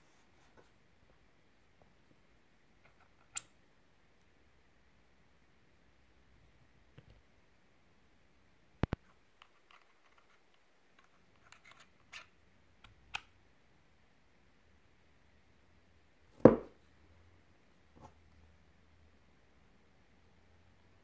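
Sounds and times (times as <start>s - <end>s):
small metallic clicks and scrapes: 8.9s - 12.3s
loud knock: 16.4s - 16.7s.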